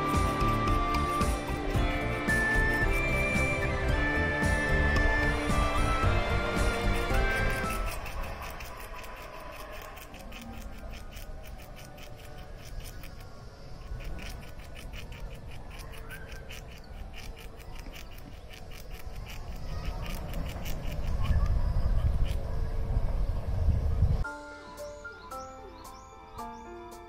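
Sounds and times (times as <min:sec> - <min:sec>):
squirrel gnawing on nut: 0:07.6 - 0:22.4.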